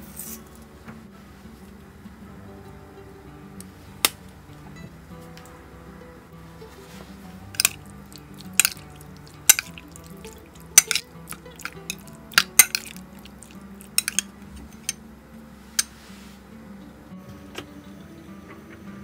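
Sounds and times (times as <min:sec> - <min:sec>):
metal spoon clinking ceramic bowl: 0:07.6 - 0:15.0.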